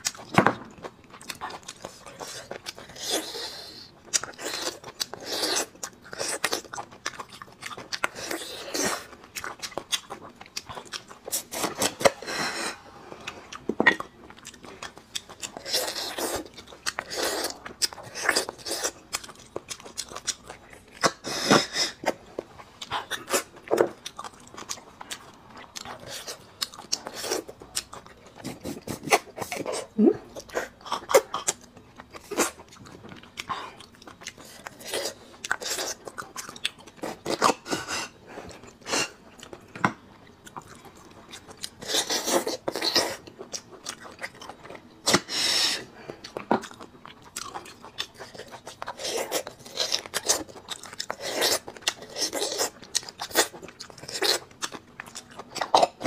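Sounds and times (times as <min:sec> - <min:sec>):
wet chewing: 0:00.0 - 0:56.0.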